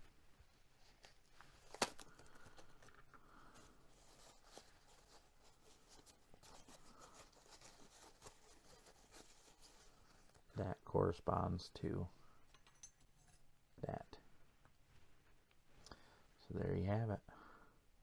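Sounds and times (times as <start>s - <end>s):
tissue paper rustling: 0.0s - 10.5s.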